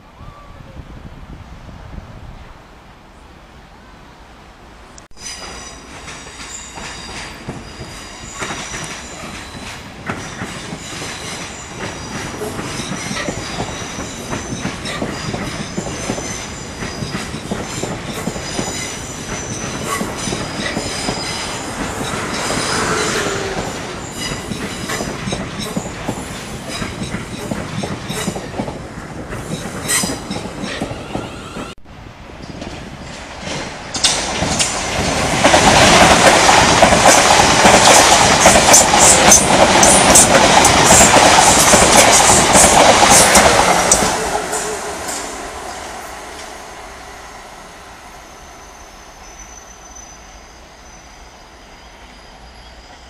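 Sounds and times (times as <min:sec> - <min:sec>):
train rumbling: 0:04.0 - 0:53.0
train wheels squealing: 0:05.2 - 0:28.6, 0:29.4 - 0:31.8, 0:37.9 - 0:53.0
wheels clicking over rail joints: 0:05.2 - 0:31.8, 0:32.4 - 0:44.5.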